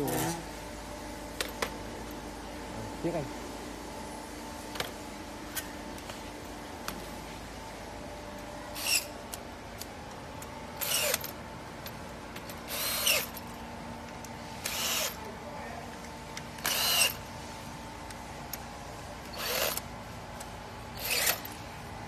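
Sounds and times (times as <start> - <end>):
cordless drill whirring: 8.8 - 9.1, 10.8 - 11.3, 12.7 - 13.4, 14.6 - 15.2, 16.6 - 17.3, 19.3 - 19.9, 20.9 - 21.6.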